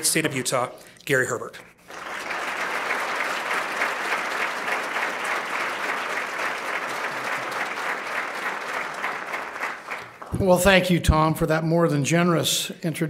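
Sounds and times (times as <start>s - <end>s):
audience applauding: 1.8s - 10.8s.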